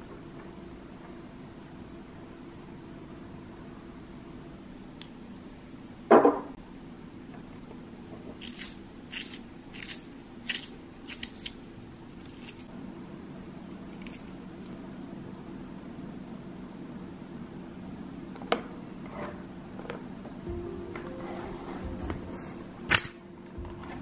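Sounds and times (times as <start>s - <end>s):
pencil sharpener shaving pencil: 8.4s - 11.6s, 12.2s - 12.7s.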